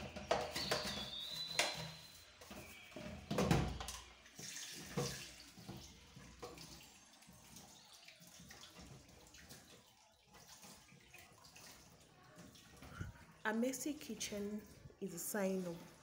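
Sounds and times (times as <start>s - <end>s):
water splashing in sink: 0.0s - 16.0s.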